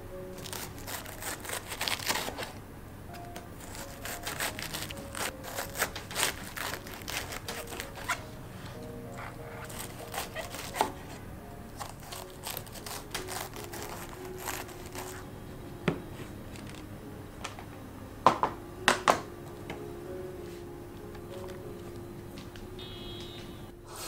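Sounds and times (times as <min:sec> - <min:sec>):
knife shredding cabbage on board: 0:00.4 - 0:02.6, 0:03.6 - 0:08.2, 0:09.6 - 0:11.2, 0:11.8 - 0:15.2.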